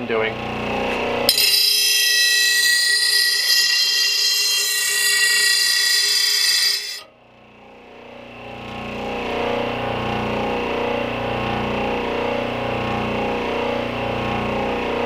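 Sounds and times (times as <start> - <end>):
grinding wheel screeching on blade: 1.3 - 7.1.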